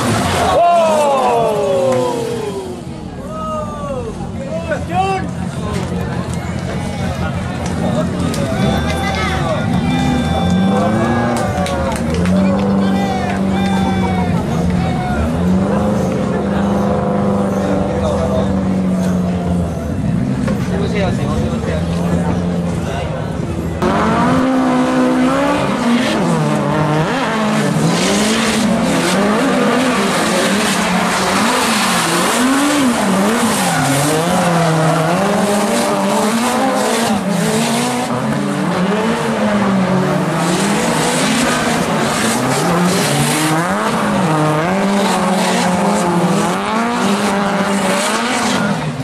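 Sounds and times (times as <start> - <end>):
car engines revving hard: 0.0 - 3.3, 4.0 - 49.0
tyre squeal and skidding: 8.4 - 11.6, 12.9 - 20.1, 28.0 - 36.9.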